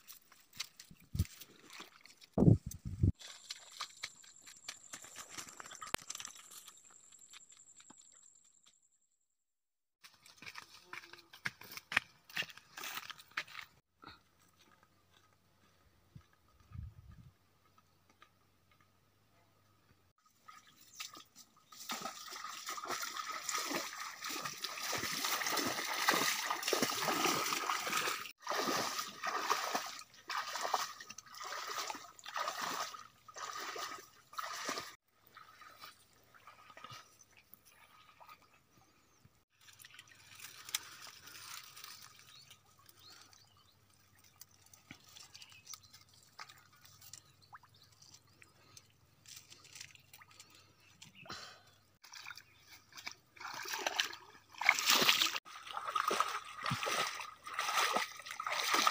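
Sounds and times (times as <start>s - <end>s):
water sloshing and splashing: 0.0s - 6.6s, 20.2s - 38.8s, 39.5s - 50.9s, 52.0s - 58.9s.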